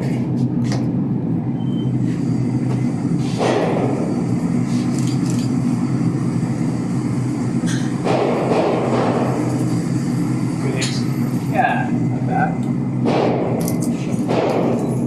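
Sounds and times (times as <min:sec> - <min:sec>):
low mechanical drone: 0:00.0 - 0:15.0
sharp knocks: 0:13.0 - 0:13.6, 0:14.2 - 0:14.8.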